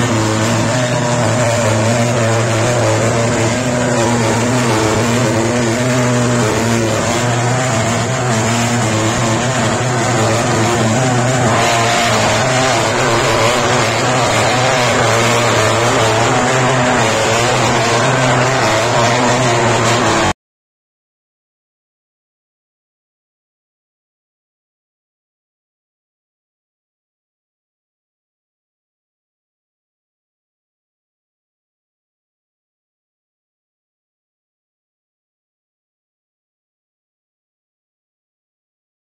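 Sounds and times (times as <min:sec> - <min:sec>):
fogging machine droning: 0:00.0 - 0:20.3.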